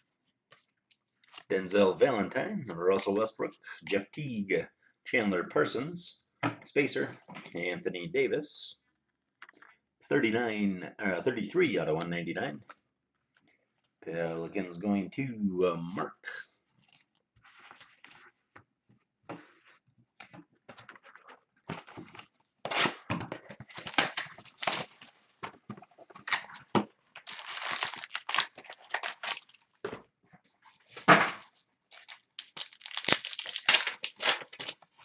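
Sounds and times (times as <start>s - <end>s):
wrapper crinkling and tearing: 23.7s - 25.1s, 26.2s - 29.8s, 31.9s - 35.0s.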